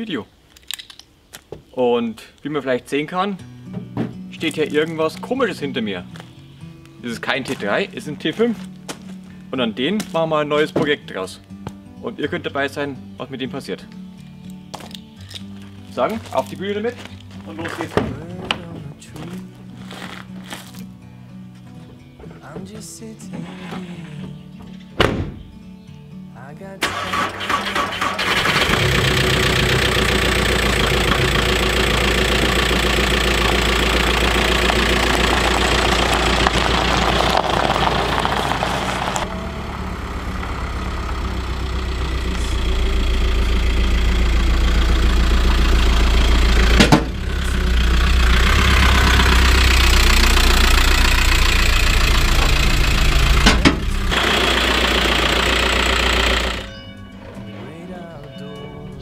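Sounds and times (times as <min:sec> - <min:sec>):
van engine running: 0:26.8 - 0:57.7.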